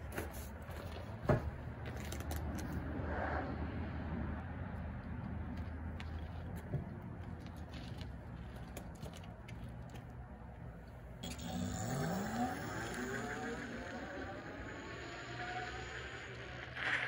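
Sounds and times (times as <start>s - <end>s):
electric motor whining: 11.2s - 17.0s.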